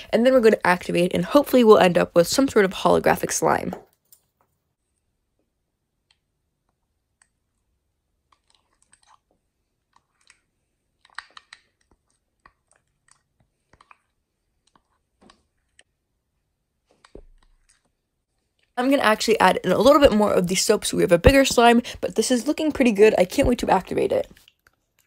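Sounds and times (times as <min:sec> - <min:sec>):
wet gel smacks: 0:11.0 - 0:14.0.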